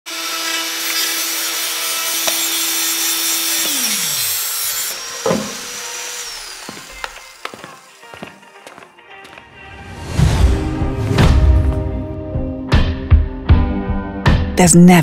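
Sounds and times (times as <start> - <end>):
oscillating tool sawing wood: 0.1 - 8.8
motor winding down: 2.2 - 8.3
knock: 5.2 - 5.7.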